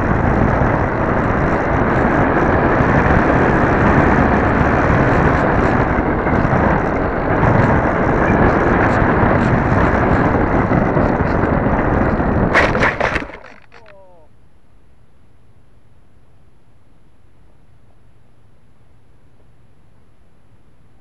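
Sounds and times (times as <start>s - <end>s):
electric motor and propeller: 0.0s - 14.0s
airflow over microphone: 0.0s - 14.3s.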